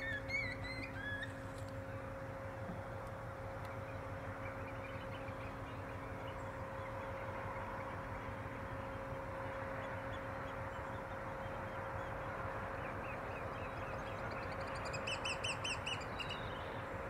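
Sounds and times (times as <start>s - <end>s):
high piping bird notes: 0.0s - 1.5s
birds calling: 0.0s - 2.1s.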